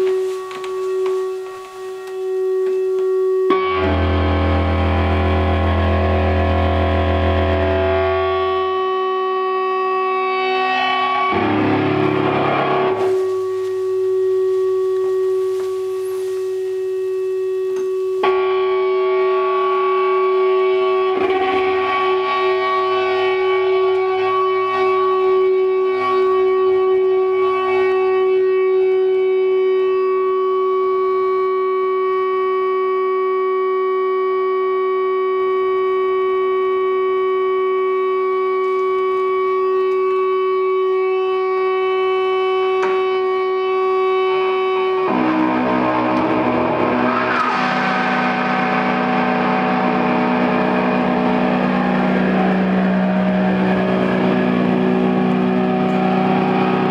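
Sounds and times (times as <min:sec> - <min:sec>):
electric guitar feedback drone: 0:00.0 - 0:56.9.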